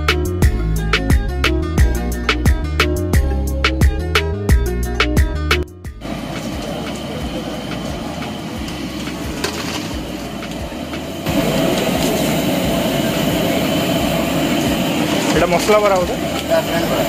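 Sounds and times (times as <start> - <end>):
hot oil sizzling: 6.0 - 17.0.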